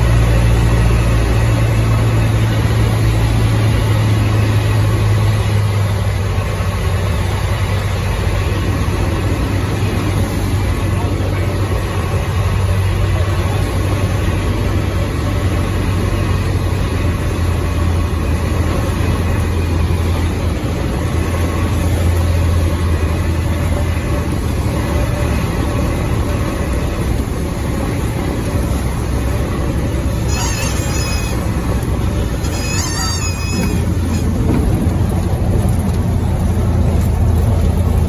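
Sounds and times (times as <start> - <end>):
light aircraft engine droning: 0.0 - 38.0
wind noise: 31.3 - 38.0.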